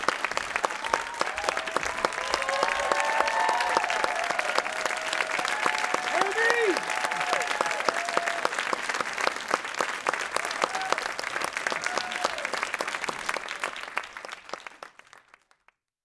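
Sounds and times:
audience applauding: 0.0 - 15.8
people whooping and cheering: 0.3 - 8.8, 10.2 - 12.8.

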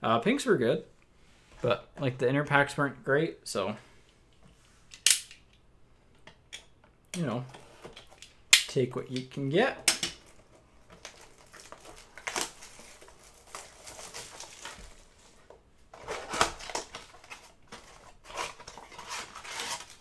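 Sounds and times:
packaging crinkling and rustling: 10.1 - 20.0.

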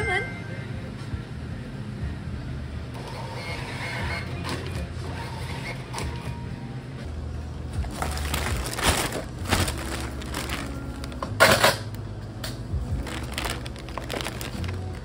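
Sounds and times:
plastic bag rustling and crinkling: 7.8 - 11.9, 13.0 - 15.0.

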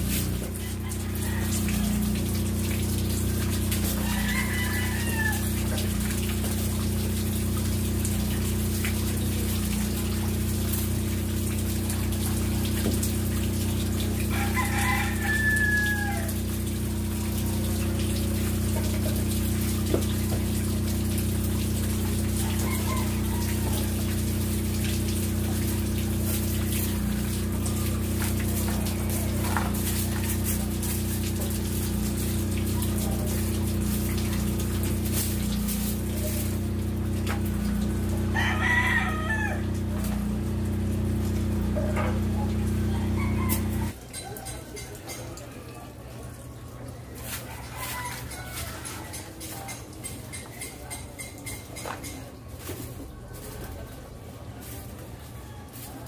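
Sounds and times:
low machine hum: 0.0 - 44.0
rooster crowing: 0.4 - 2.3, 3.2 - 6.1, 14.2 - 16.8, 21.8 - 44.0, 47.2 - 49.4.

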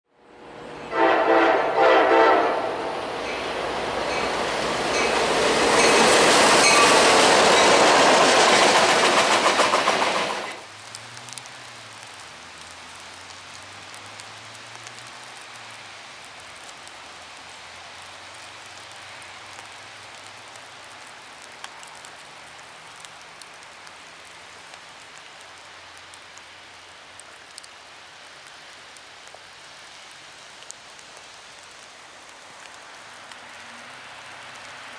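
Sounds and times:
train passing with rail clatter: 0.2 - 12.2, 30.9 - 34.9
train horn chord: 0.7 - 4.4
small ticks: 10.8 - 15.7, 27.2 - 27.8.

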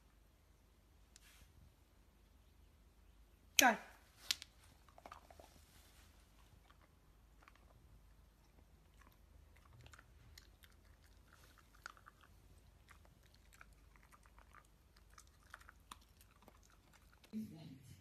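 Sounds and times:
dog chewing: 4.6 - 17.4.

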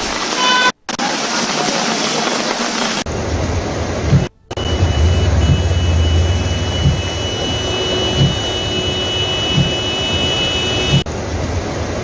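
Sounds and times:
rain and water noise: 0.0 - 12.0
vehicle engines in floodwater: 2.4 - 12.0
heavy low rumble: 3.2 - 10.3
dull low thump: 4.1 - 8.9, 9.5 - 9.9.

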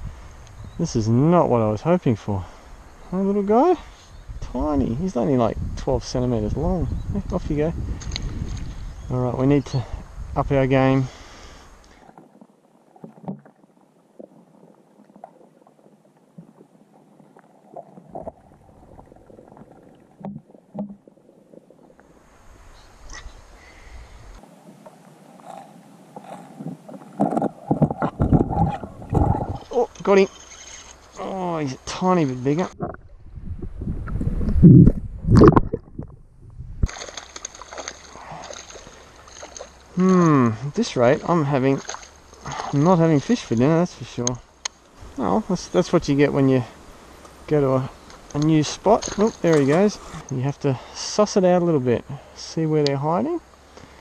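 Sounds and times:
steady hiss: 0.0 - 12.2, 21.9 - 27.9, 38.4 - 54.0
muffled underwater water noise: 0.0 - 54.0
dull underwater knocks and gurgles: 11.9 - 22.3, 24.7 - 31.0, 32.6 - 39.9
low underwater thumps: 17.8 - 21.2, 26.6 - 29.7, 32.8 - 37.1
small fish splashing: 36.8 - 40.0, 41.7 - 42.5.

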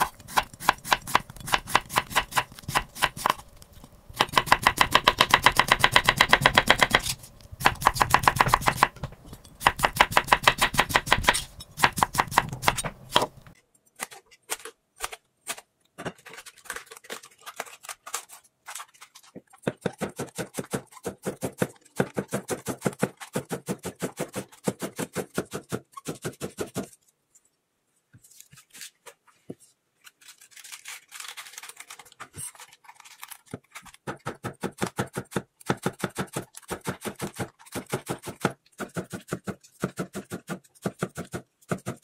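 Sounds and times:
handling cabbage leaves: 28.2 - 33.9.

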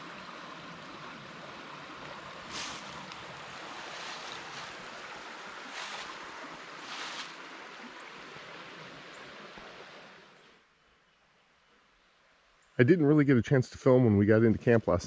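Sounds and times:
rushing water: 0.0 - 10.6.

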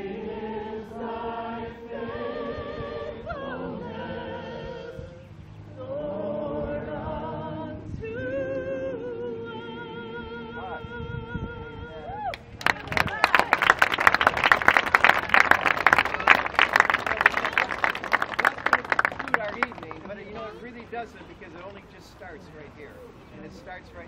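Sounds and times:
group singing worship song: 0.0 - 10.8.

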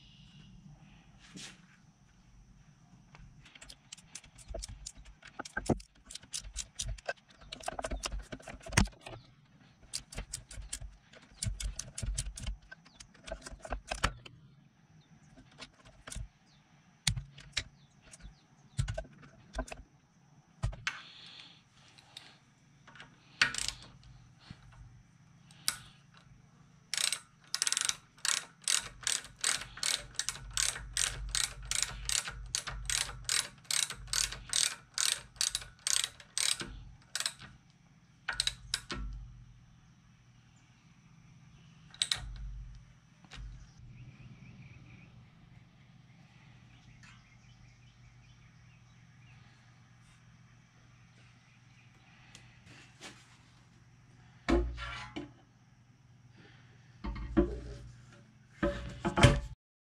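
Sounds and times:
hand ratchet clicking: 3.5 - 9.0, 9.8 - 14.2, 22.9 - 24.8, 26.9 - 37.6, 38.3 - 39.2, 41.9 - 42.4.

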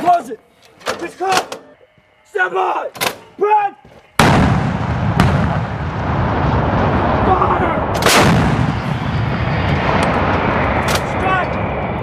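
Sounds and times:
low rumble of gunfire: 4.2 - 11.1
howitzer blast: 4.2 - 12.0.

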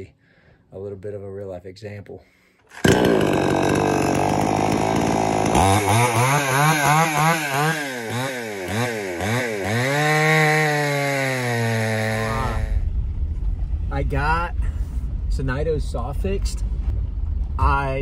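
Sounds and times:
chainsaw revving and cutting log: 2.7 - 12.8.

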